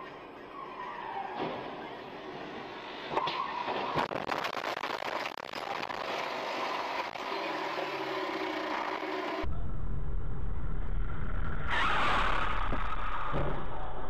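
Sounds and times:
road noise: 0.0 - 14.0
tyre squeal: 0.5 - 1.8, 11.7 - 13.6.

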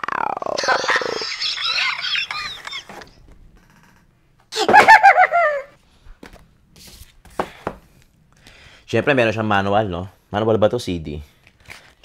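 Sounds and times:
high-pitched cackling laughter: 0.6 - 3.1, 4.6 - 5.8.

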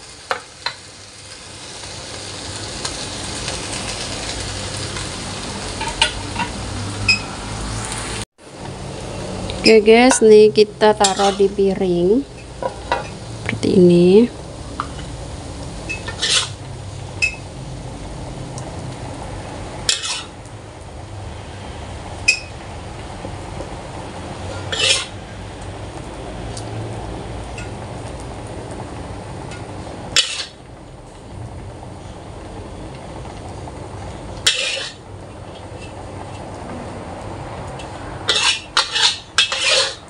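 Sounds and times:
metal spatula scraping wok: 3.4 - 8.2, 9.2 - 15.2, 15.8 - 17.4, 19.8 - 20.4, 24.4 - 25.2, 29.5 - 30.6, 34.4 - 36.5, 37.8 - 40.0.

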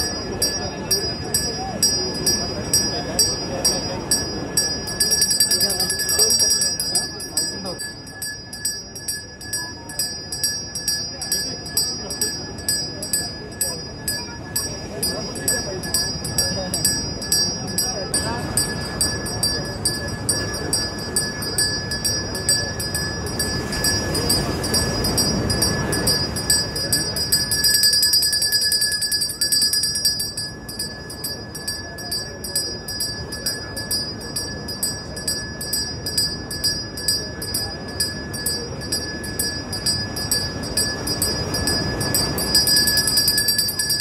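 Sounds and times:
high ringing tones: 0.0 - 44.0.

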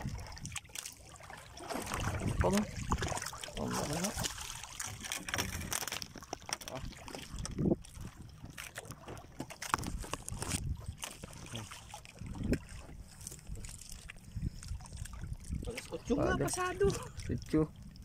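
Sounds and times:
wind on microphone: 0.0 - 0.6, 1.8 - 5.8, 6.7 - 18.0
knocks and clatter aboard boat: 0.0 - 14.2
water sloshing against boat hull: 0.0 - 18.0.

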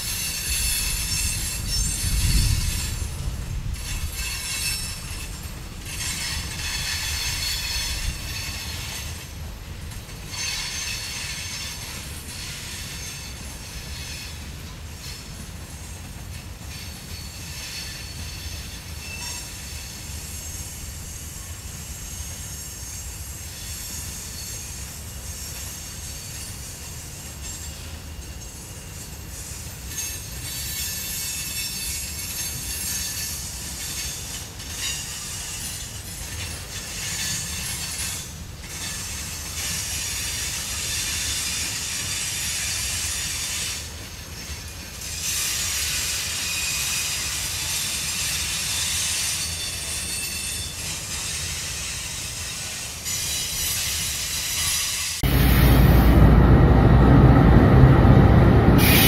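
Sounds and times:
train wheels rumbling on rail: 0.0 - 59.0
high-pitched wheel squeal: 58.8 - 59.0.

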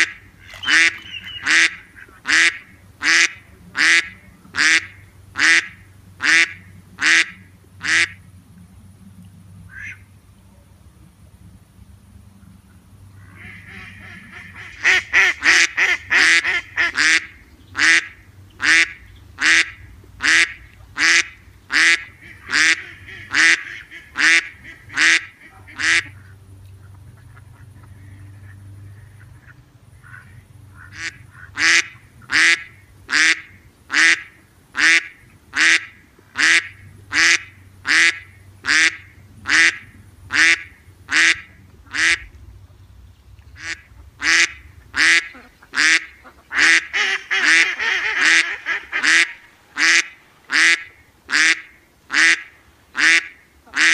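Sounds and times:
duck quacking: 0.0 - 8.2, 13.2 - 42.3, 43.6 - 53.9.

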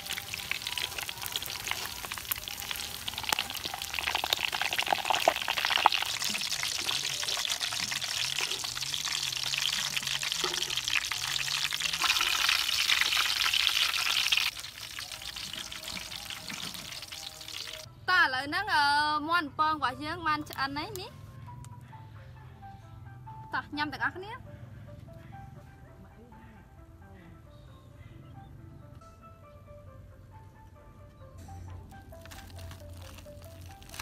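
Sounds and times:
oil sizzling and crackling: 0.0 - 17.9, 32.1 - 34.0.

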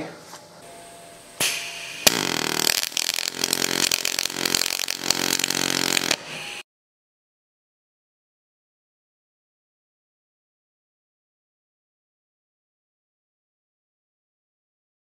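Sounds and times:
gas hiss: 1.4 - 6.6
welding arc crackling buzz: 1.4 - 6.6.

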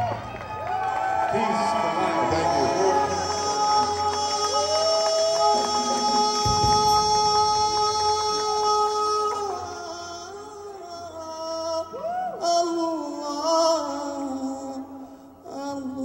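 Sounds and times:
solo voice singing: 1.3 - 16.0
steady held note: 2.1 - 11.2.

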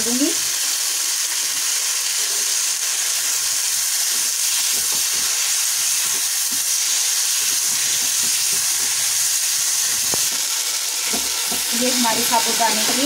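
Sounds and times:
food sizzling in a pan: 0.0 - 13.0
spatula scraping and tapping: 4.1 - 6.8, 7.4 - 9.2, 9.8 - 10.4.

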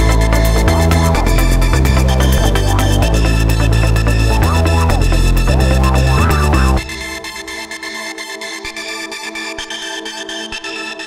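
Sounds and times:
heavy bass and synth sweeps: 0.0 - 8.4
electronic music: 0.0 - 11.0.

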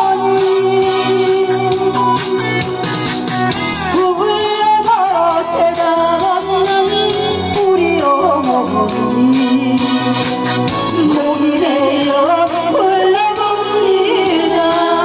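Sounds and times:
woman singing into microphone: 0.0 - 2.8, 3.8 - 15.0
instrumental accompaniment with beat: 0.0 - 15.0.

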